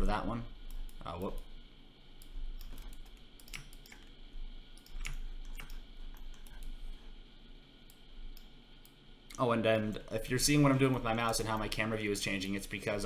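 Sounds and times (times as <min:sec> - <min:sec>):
faint low hum: 0:00.0 - 0:13.0
computer mouse clicks: 0:02.2 - 0:04.1, 0:04.7 - 0:06.8, 0:07.9 - 0:09.4.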